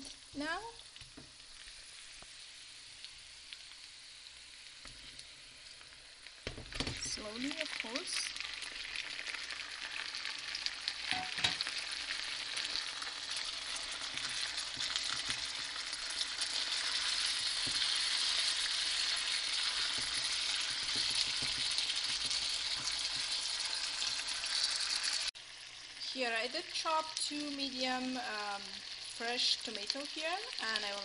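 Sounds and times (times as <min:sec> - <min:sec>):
chicken sizzling in a frying pan: 0:00.0 - 0:31.0
wooden spoon stirring: 0:13.4 - 0:24.7.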